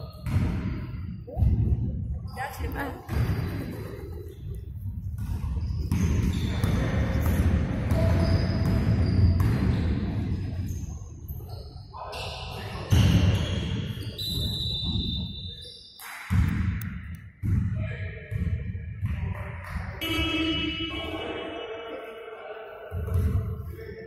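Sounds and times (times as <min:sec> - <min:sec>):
sneaker squeaks: 0:02.3 - 0:04.6, 0:05.2 - 0:16.1.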